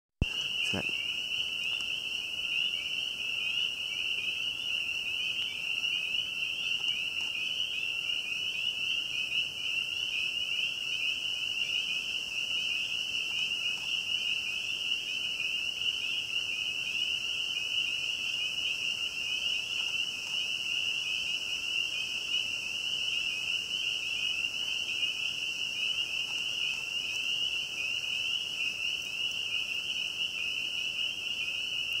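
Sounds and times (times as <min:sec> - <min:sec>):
frogs peeping chorus: 0:00.2 - 0:32.0.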